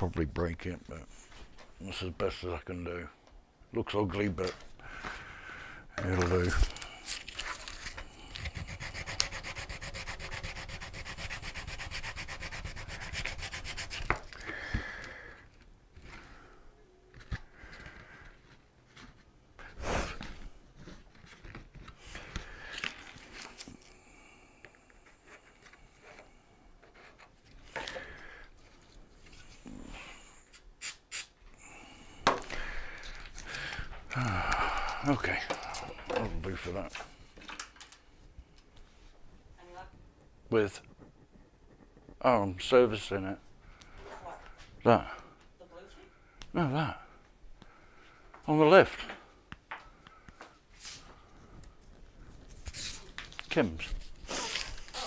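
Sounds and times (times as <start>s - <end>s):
sandpaper scratching plastic: 7.3s - 14.4s
aerosol spray can hissing: 30.5s - 31.4s.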